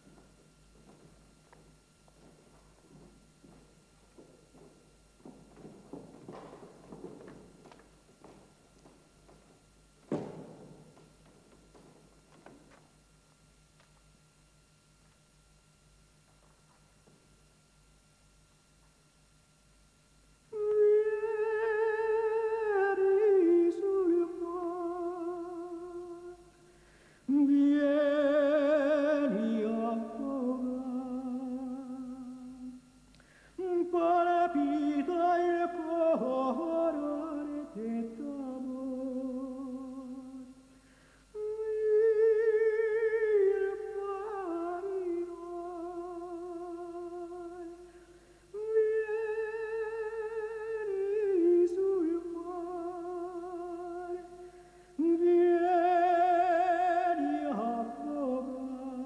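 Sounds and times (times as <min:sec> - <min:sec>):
person humming mournful melody: 0:20.5 - 0:26.4, 0:41.4 - 0:47.9.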